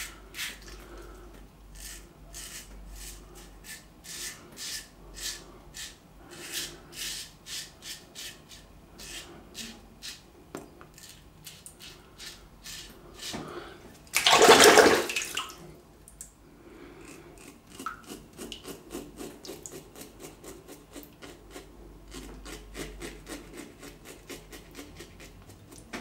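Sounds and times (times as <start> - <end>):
razor scraping stubble: 17.0 - 25.8.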